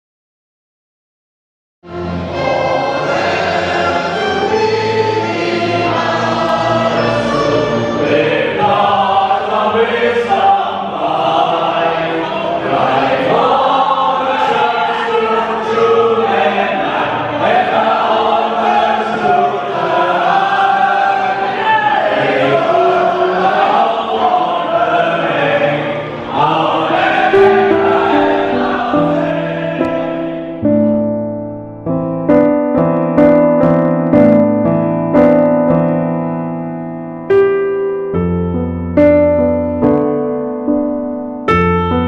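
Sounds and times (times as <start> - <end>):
choir singing: 1.9 - 31.3.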